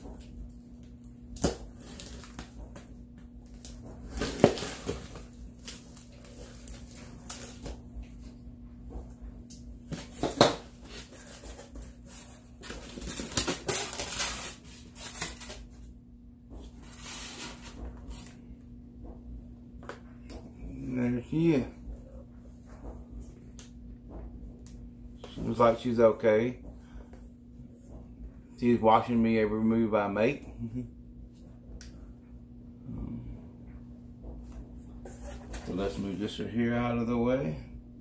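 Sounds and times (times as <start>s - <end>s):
faint steady hum: 0.0s - 38.0s
knife slitting packing tape: 12.9s - 15.6s.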